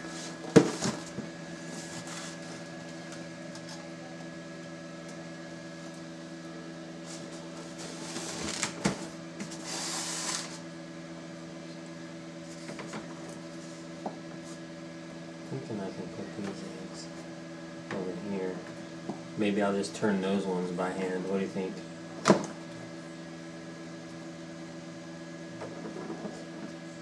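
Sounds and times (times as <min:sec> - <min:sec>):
incubator motor hum: 0:00.0 - 0:27.0.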